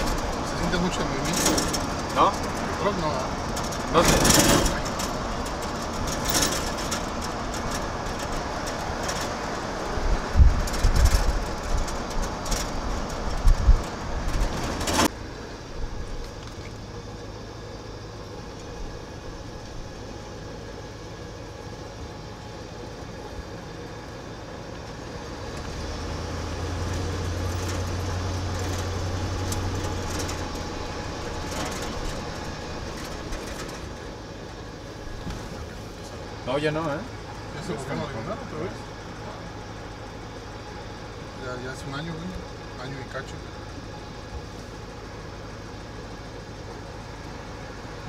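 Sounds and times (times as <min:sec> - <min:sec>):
wind buffeting: 0:00.0 - 0:16.3
pickup engine drone: 0:00.0 - 0:48.0
road noise: 0:00.0 - 0:48.0.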